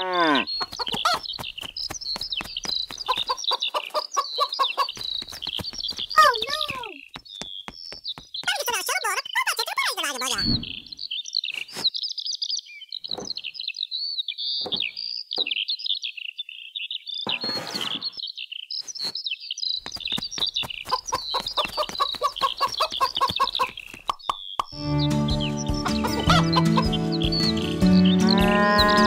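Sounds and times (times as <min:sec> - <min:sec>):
small birds chirping: 0:00.0 - 0:29.0
fast run of clicks: 0:00.6 - 0:03.4, 0:05.0 - 0:06.2, 0:19.8 - 0:24.7.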